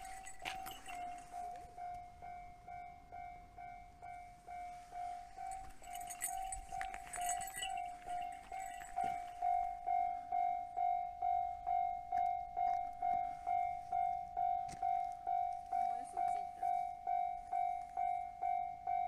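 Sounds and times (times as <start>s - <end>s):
level crossing warning bell: 0.0s - 19.0s.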